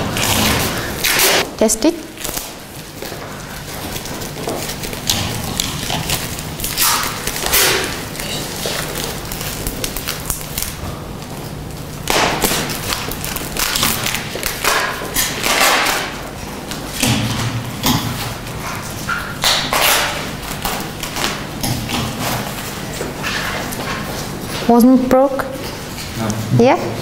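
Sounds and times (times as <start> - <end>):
plastic bag rustling and crinkling: 0.0 - 16.4.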